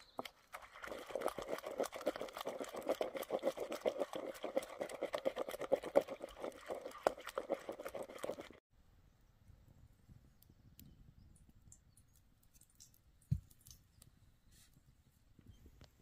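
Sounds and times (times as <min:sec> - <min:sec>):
wet squelching of mixed food: 0:00.0 - 0:08.6.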